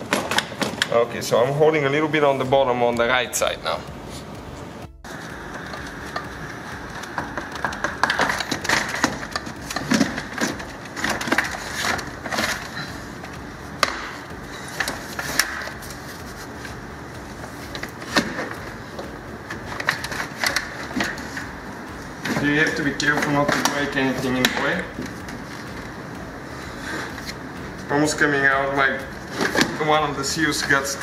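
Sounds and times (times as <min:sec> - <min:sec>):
plastic scraping and knocking: 0:06.9 - 0:12.8.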